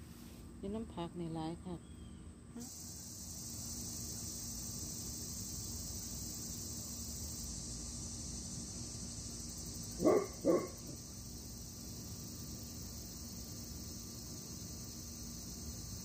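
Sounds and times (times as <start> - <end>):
crickets chirping: 1.7 - 16.0
dog barking: 10.0 - 10.9.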